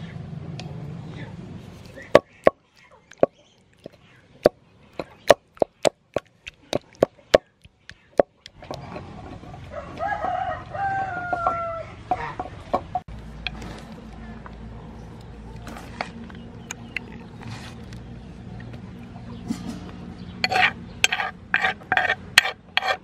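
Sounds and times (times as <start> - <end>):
pestle knocking in wooden mortar: 2.1 - 8.4
rooster crowing: 9.7 - 12.3.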